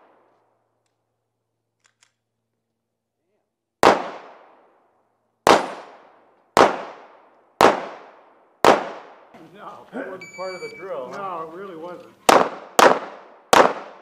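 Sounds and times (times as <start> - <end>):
pistol shots: 3.8 - 4.7, 5.4 - 9.3, 12.2 - 14.0.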